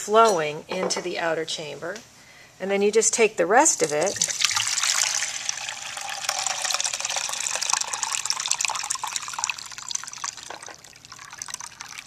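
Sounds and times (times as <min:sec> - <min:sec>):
liquid pouring from bottle: 0:03.8 - 0:12.0.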